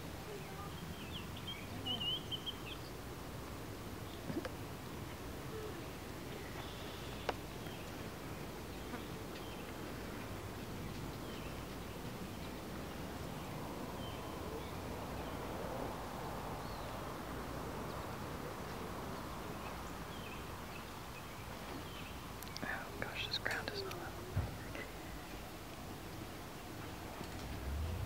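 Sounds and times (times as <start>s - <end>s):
steady background noise: 0.0s - 28.0s
faint bird chirps: 0.2s - 3.0s, 5.5s - 12.6s.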